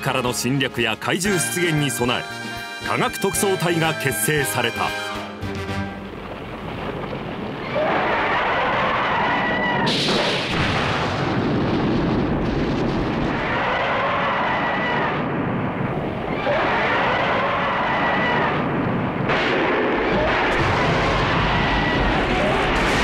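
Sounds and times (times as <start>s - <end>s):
shell explosions rumbling: 5.6s - 23.0s
sharp blast: 9.8s - 13.7s
monster crying: 20.1s - 23.0s.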